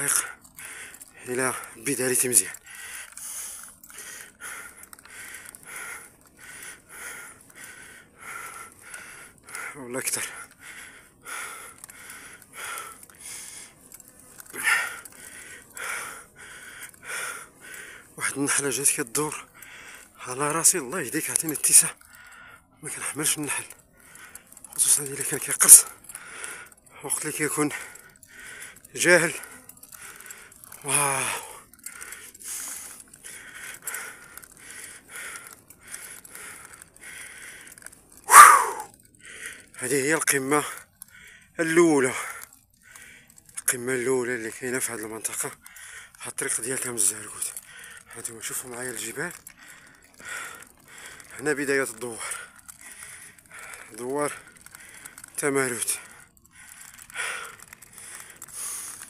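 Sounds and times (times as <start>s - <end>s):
person panting hard: 0.2s - 1.8s, 2.5s - 18.2s, 19.4s - 20.2s, 22.0s - 22.8s, 23.7s - 24.7s, 25.8s - 26.9s, 27.7s - 39.8s, 40.7s - 43.6s, 45.6s - 46.2s, 47.5s - 48.2s, 49.3s - 51.4s, 52.0s - 55.4s, 56.0s - 59.0s.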